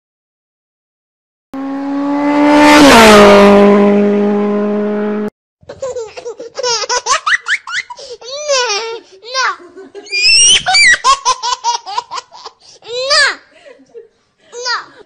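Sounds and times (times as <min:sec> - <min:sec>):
car speeding past: 0:01.6 - 0:05.3
high-pitched laughing: 0:05.7 - 0:15.0.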